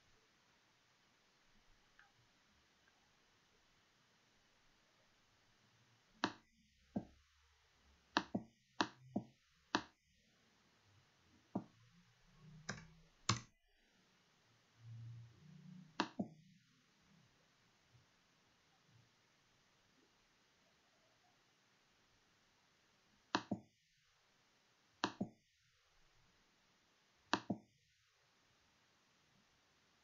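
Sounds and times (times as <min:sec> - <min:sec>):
mouse and keyboard clicks: 0:12.6 - 0:13.5.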